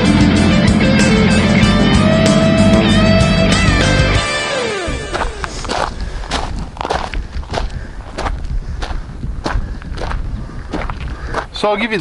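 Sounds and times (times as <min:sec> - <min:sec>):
guitar music sliding down: 0:00.0 - 0:05.9
footsteps on gravel: 0:04.5 - 0:12.0.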